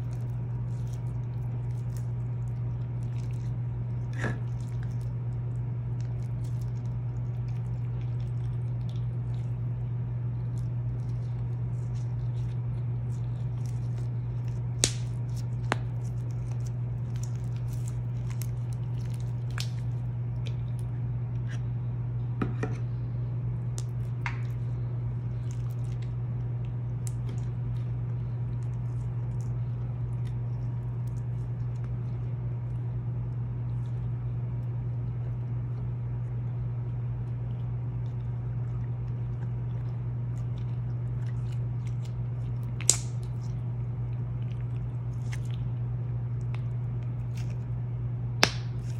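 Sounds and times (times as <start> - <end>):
slime squishing by hand: 0.0 - 21.7, 37.2 - 47.8
steady low hum: 0.0 - 48.9.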